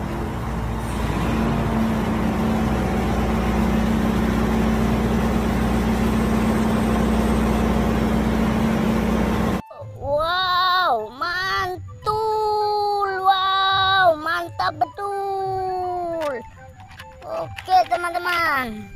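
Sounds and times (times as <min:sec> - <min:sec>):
excavator diesel engine running: 0:00.0 - 0:09.6
steady hum: 0:00.0 - 0:09.6.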